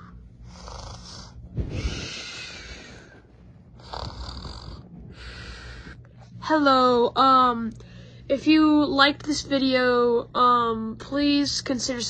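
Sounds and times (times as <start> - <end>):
person imitating snoring: 0.0 - 3.0, 3.8 - 5.3.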